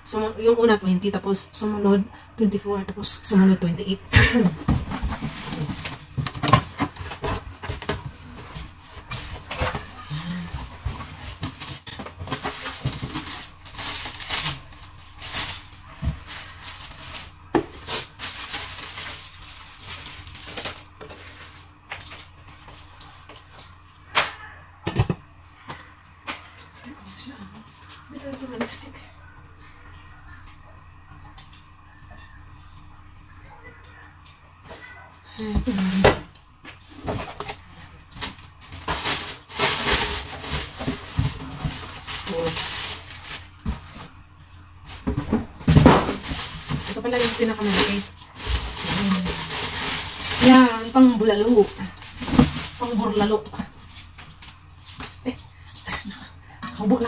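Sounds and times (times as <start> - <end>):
plastic wrapping crinkling: 4.9 - 23.5, 37.0 - 45.1, 45.7 - 55.2.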